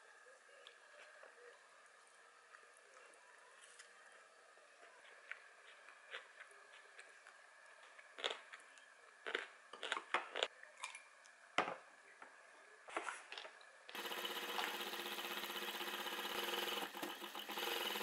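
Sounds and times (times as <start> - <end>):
industrial sewing machine running: 13.9 - 18.0.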